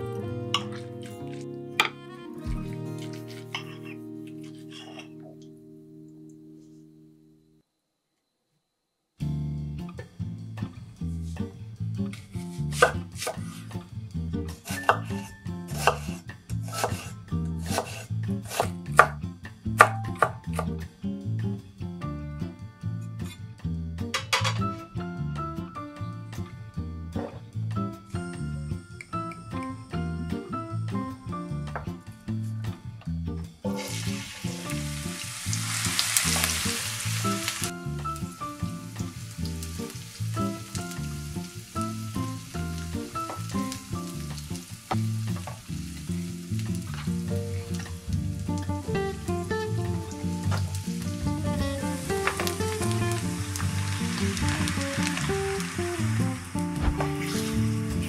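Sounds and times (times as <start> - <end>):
onion sizzling in frying pan: 11.2 - 21.5, 33.7 - 58.0
knife chopping onion on wood: 12.7 - 13.6, 14.7 - 19.2, 19.8 - 20.8.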